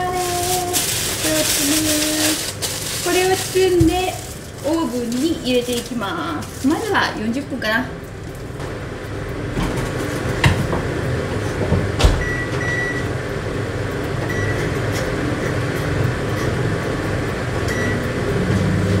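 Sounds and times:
oven running hum: 0.0 - 19.0
steady hum: 0.0 - 19.0
electronic control panel beeps: 12.2 - 13.2, 14.2 - 14.8, 17.6 - 18.2.

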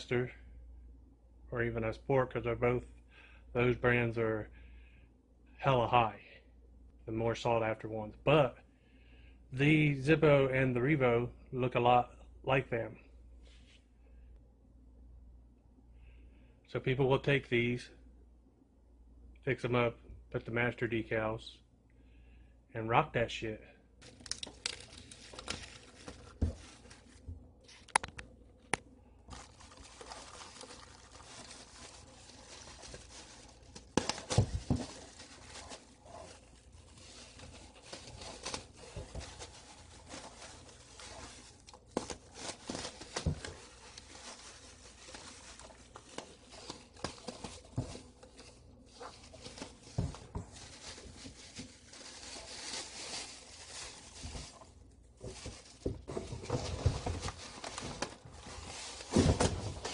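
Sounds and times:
plastic wrapping crinkling and tearing: 24.0 - 59.9.

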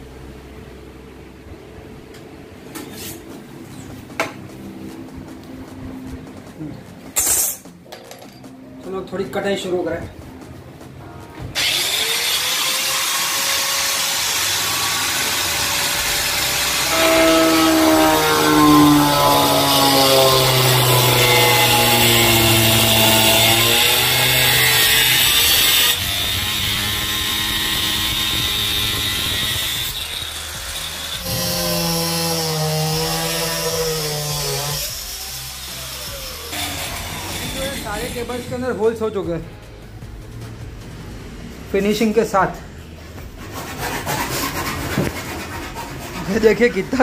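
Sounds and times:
angle grinder cutting wood: 11.5 - 38.6.

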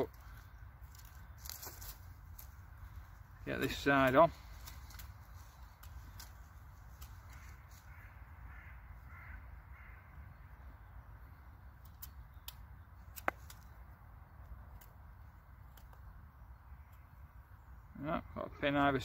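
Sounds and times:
faint bird calls: 7.0 - 12.6.

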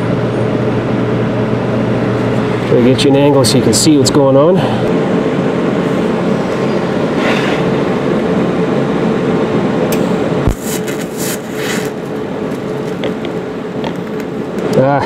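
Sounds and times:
welding machine hum: 0.0 - 14.8
welding arc crackling and sputtering: 9.9 - 14.8.

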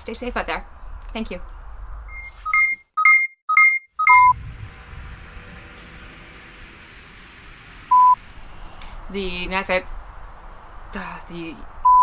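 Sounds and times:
steady electronic beep: 2.1 - 4.4, 7.9 - 8.2
two-note electronic beeps: 2.1 - 4.4.

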